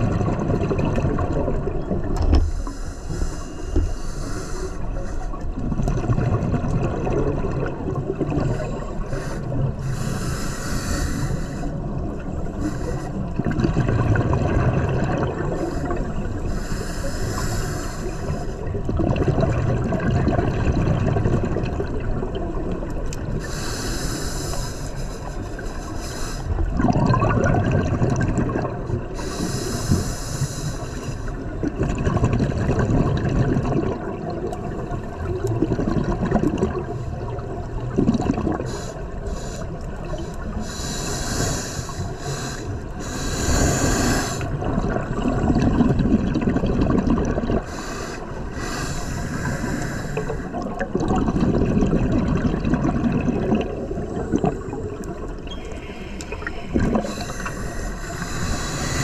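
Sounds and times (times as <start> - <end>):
hissing regulator inhalation: 2.4 - 5.3, 8.4 - 11.8, 12.5 - 13.3, 15.5 - 18.7, 23.4 - 26.6, 29.2 - 31.4, 38.6 - 44.6, 47.6 - 50.6, 54.0 - 59.0
bubbling exhalation: 13.4 - 15.6, 18.8 - 22.5, 26.6 - 28.9, 31.6 - 38.7, 43.4 - 47.7, 50.2 - 55.3, 56.3 - 57.6.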